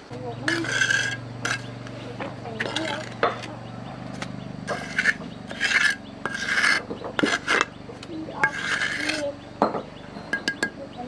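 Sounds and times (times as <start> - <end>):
scraping strokes: 0.4 - 3.6, 4.2 - 7.7, 8.3 - 9.4.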